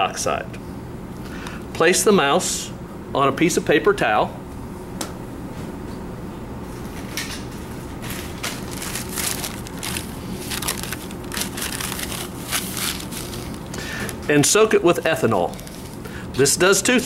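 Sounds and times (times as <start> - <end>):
steady low hum: 0.0 - 17.0
paper towel crinkling: 7.9 - 14.2, 15.1 - 16.0.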